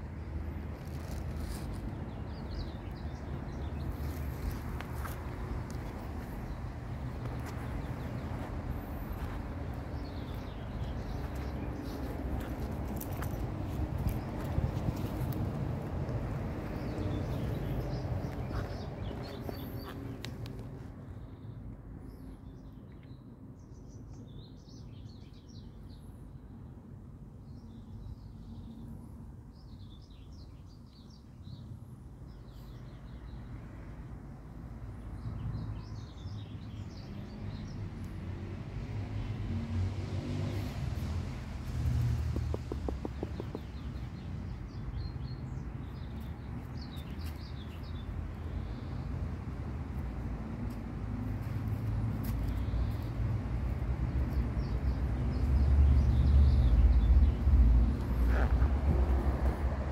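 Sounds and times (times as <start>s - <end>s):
road traffic rumble: 0.0s - 59.9s
small birds chirping: 0.8s - 15.6s, 16.6s - 26.6s, 40.6s - 49.8s, 51.4s - 59.6s.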